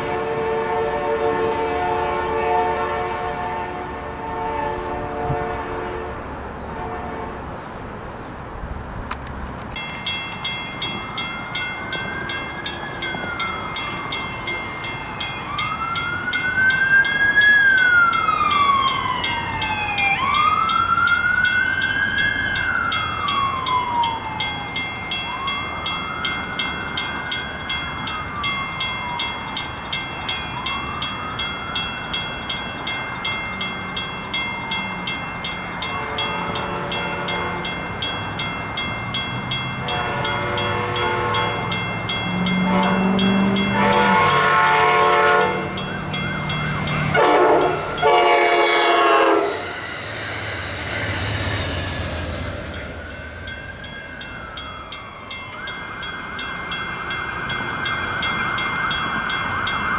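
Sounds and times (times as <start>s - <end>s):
railroad crossing bell ringing: 0.0s - 4.9s, 9.6s - 59.9s
faint train horn: 0.0s - 7.6s, 36.0s - 37.6s, 39.8s - 46.0s, 47.0s - 53.4s
emergency siren wailing: 11.9s - 59.9s.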